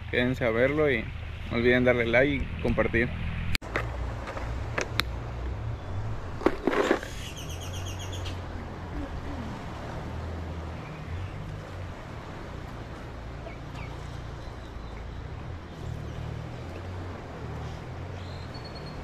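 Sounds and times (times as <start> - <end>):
steady low rumble: 0.0 - 10.5
bird trilling chirps: 7.1 - 8.4, 18.2 - 19.0.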